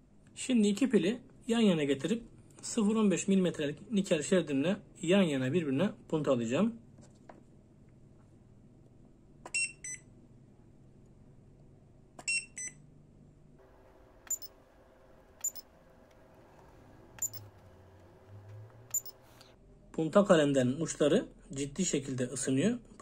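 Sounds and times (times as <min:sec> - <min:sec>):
short electronic beeps: 0:12.3 - 0:12.8, 0:14.2 - 0:14.6, 0:15.4 - 0:15.7, 0:17.2 - 0:17.6, 0:18.8 - 0:19.4.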